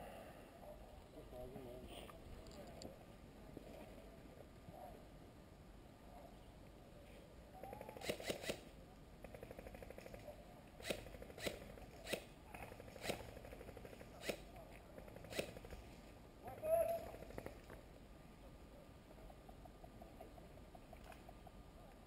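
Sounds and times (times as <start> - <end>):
faint automatic fire rattle: 9.2 - 16.0.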